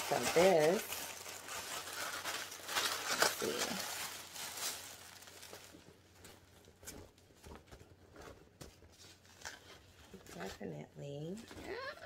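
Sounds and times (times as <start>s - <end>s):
wrapping paper rustling: 0.0s - 10.7s.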